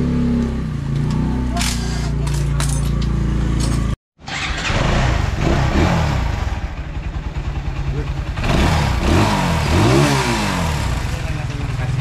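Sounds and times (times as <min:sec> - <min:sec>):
motorcycle engine idling and revving: 0:00.0 - 0:12.0.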